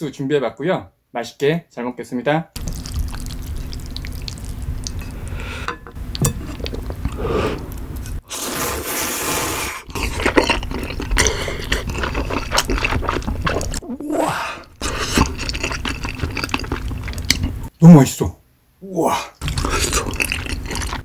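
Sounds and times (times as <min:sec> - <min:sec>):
wet clicky chewing: 0:02.6 - 0:05.1, 0:14.6 - 0:17.7
person slurping noodles: 0:06.5 - 0:17.3, 0:19.4 - 0:21.0.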